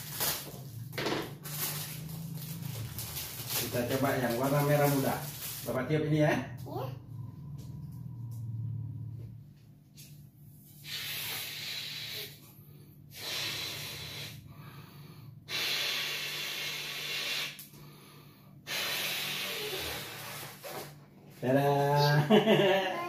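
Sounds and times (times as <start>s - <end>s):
breaths blowing up a balloon: 10.8s - 12.5s, 13.1s - 21.0s
person inhaling: 10.8s - 20.6s.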